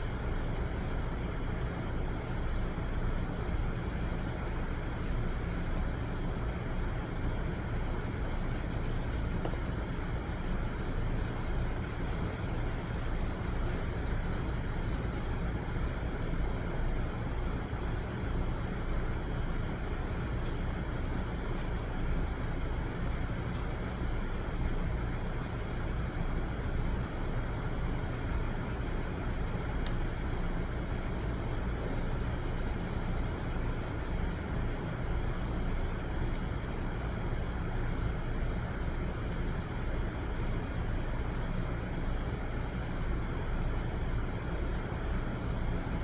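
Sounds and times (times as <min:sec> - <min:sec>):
low rumbling background noise: 0:00.0 - 0:46.0
pencil strokes on paper: 0:07.3 - 0:15.3.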